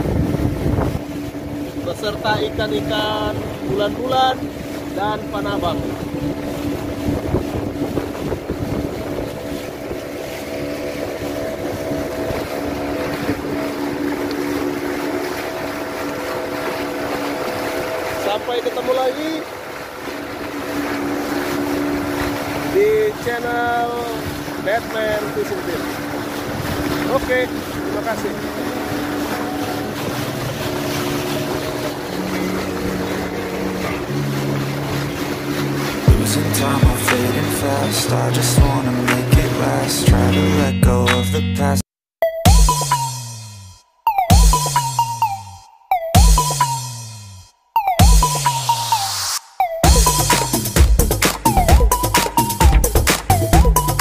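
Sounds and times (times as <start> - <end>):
wind buffeting microphone: 0.0 - 40.4
water rushing past hull: 0.0 - 41.0, 44.2 - 54.0
boat engine droning: 0.0 - 54.0.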